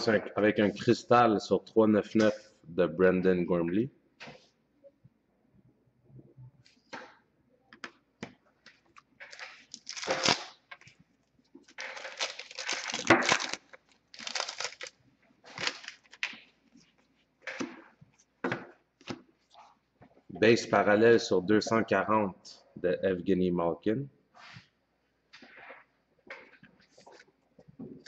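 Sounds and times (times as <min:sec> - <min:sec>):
wrapper tearing and crinkling: 0:09.2 - 0:10.9, 0:11.6 - 0:16.3.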